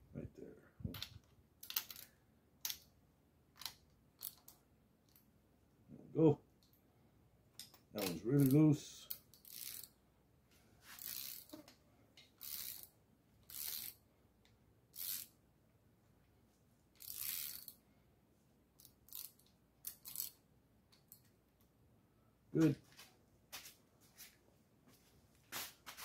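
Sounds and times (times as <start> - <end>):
ratchet clicking: 1.0 - 2.1, 3.6 - 4.6, 7.6 - 9.9, 11.0 - 11.6, 12.2 - 14.0, 15.0 - 15.3, 17.0 - 17.8, 18.8 - 21.2.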